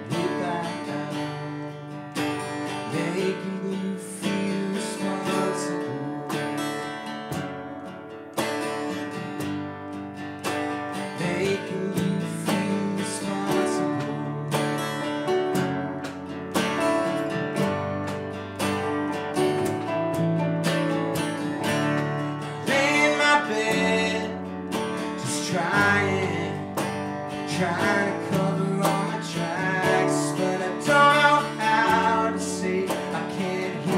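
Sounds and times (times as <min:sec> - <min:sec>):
acoustic guitar strumming: 0:00.0 - 0:33.9
keyboard: 0:00.0 - 0:33.9
electric bass: 0:09.1 - 0:33.9.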